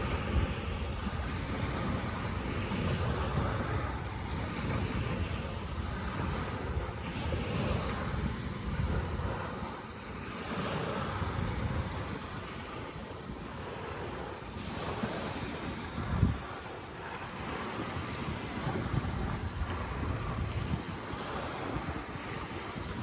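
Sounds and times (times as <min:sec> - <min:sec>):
waves washing in: 0:00.0 - 0:23.0
wind buffeting microphone: 0:00.0 - 0:23.0.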